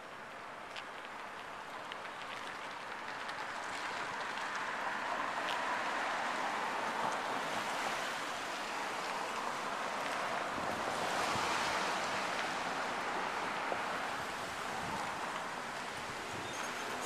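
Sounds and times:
road traffic hiss: 0.0s - 17.0s
vehicle tyre noise passing: 0.1s - 17.0s.

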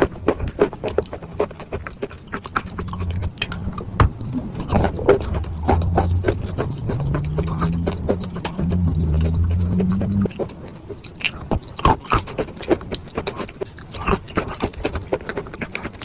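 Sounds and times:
chalk being chewed: 0.0s - 16.0s
low steady hum: 0.9s - 11.7s.

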